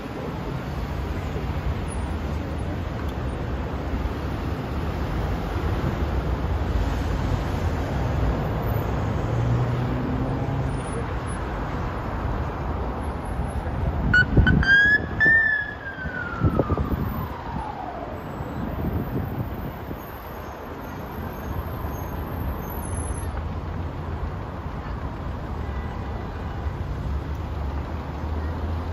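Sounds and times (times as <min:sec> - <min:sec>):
dense road traffic: 0:00.0 - 0:28.9.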